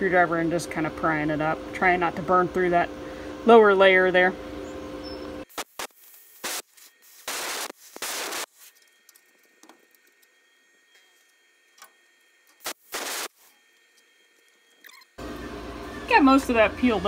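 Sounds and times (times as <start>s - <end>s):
plasma cutter hissing: 5.5s - 8.6s, 12.6s - 13.4s.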